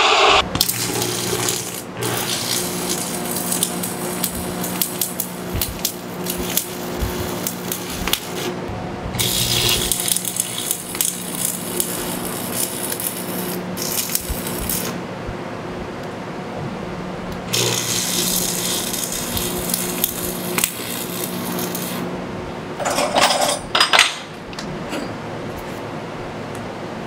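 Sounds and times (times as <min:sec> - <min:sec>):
welding arc crackling: 0:00.0 - 0:15.1, 0:17.4 - 0:22.1
steady low hum: 0:00.0 - 0:27.0.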